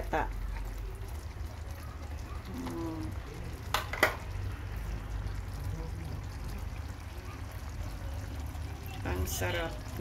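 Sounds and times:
sauce bubbling faintly: 0.0s - 10.0s.

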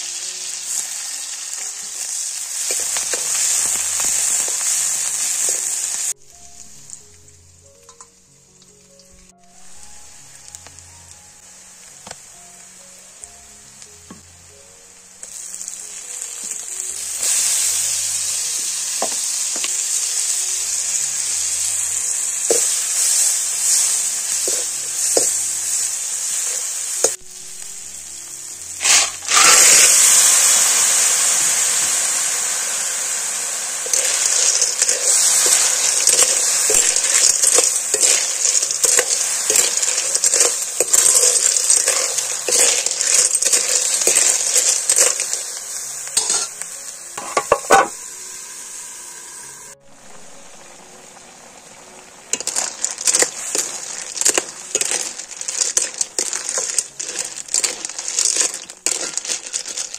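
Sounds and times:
loud hiss of food meeting oil: 0.0s - 6.2s, 15.2s - 59.9s
food sizzling in hot oil: 0.0s - 59.9s
metal ladle stirring: 21.4s - 27.2s, 28.8s - 30.1s, 33.8s - 46.6s, 47.2s - 48.0s, 52.3s - 59.9s.

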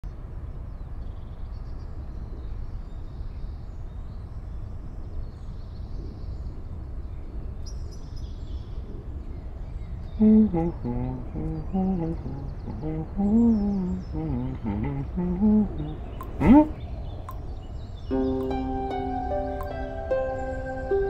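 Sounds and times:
distant bird chirps: 7.6s - 21.0s.

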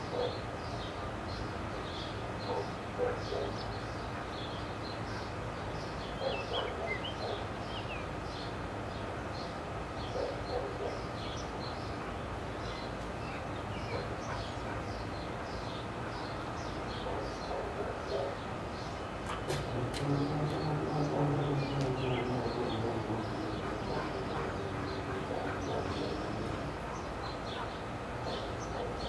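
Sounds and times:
birds chirping: 0.0s - 29.0s
steady low hum: 0.0s - 29.0s.

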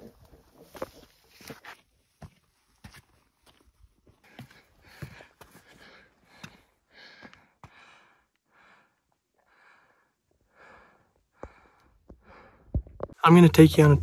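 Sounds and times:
person breathing heavily: 4.2s - 12.9s.

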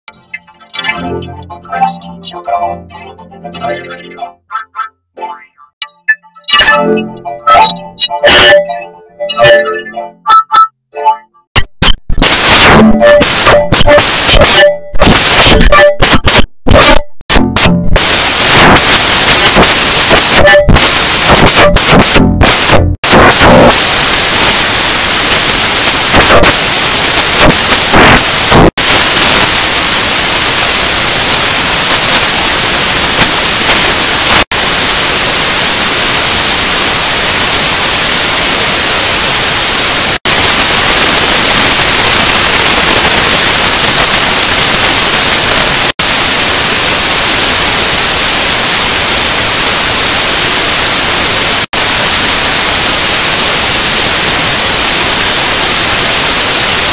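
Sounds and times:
harsh distorted static noise: 0.0s - 10.8s, 11.5s - 56.9s.

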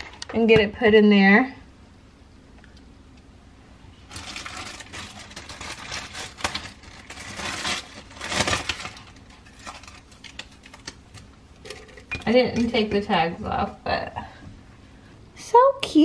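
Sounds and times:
plastic packaging crinkling and tearing: 4.1s - 11.9s.

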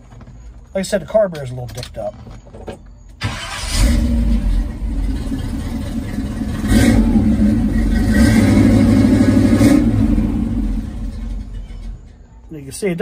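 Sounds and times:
truck engine revving: 3.2s - 12.1s.

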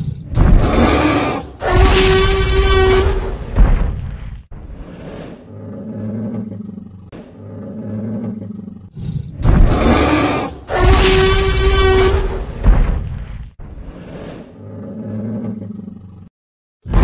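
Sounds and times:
dinosaur roar: 0.4s - 3.5s, 4.8s - 12.6s, 13.8s - 16.3s
dinosaur growls: 4.8s - 12.5s, 13.8s - 16.3s.

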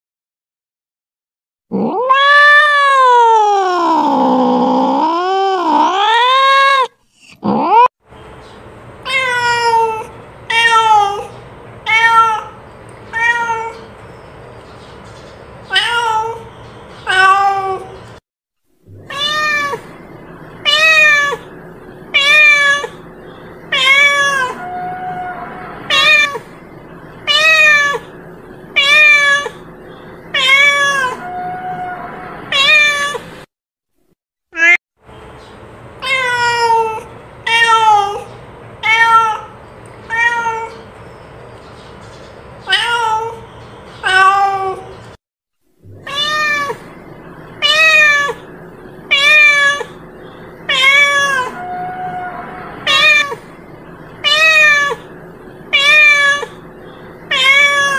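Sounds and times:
cat meowing: 1.7s - 7.9s, 9.1s - 11.3s, 11.9s - 13.9s, 15.7s - 18.0s, 19.0s - 20.0s, 20.6s - 21.5s, 22.1s - 23.0s, 23.7s - 26.5s, 27.3s - 29.7s, 30.3s - 33.3s, 34.6s - 34.8s, 36.0s - 40.8s, 42.6s - 43.4s, 44.0s - 44.9s, 46.0s - 46.9s, 47.6s - 48.5s, 49.1s - 50.0s, 50.6s - 53.6s, 54.2s - 55.1s, 55.7s - 56.6s, 57.3s - 57.9s.

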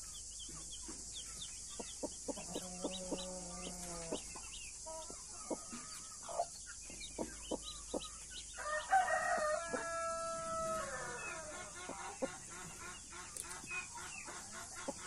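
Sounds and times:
chicks peeping: 0.0s - 15.0s
hen clucking: 0.7s - 8.2s, 10.8s - 15.0s
rooster crowing: 8.6s - 11.7s.

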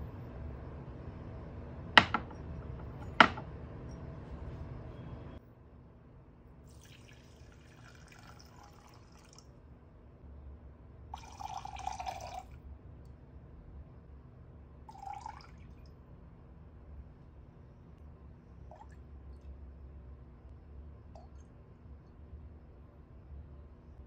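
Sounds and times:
liquid pouring into glass jug: 6.7s - 9.5s, 11.2s - 12.6s, 14.9s - 15.9s
oil trickling from metal cup: 6.7s - 9.5s, 11.2s - 12.5s.

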